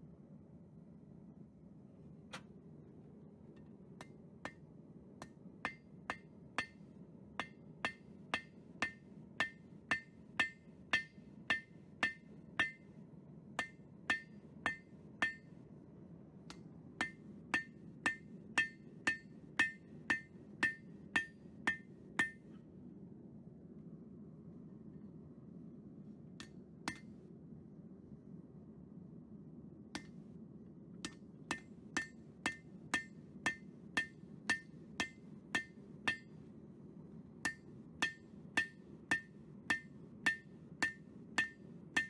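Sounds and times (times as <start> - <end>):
hammer striking steel on anvil: 4.0 - 4.6, 5.2 - 13.0, 13.6 - 15.6, 16.5 - 22.6, 26.4 - 27.2, 30.0 - 30.2, 31.0 - 36.4, 37.4 - 42.0.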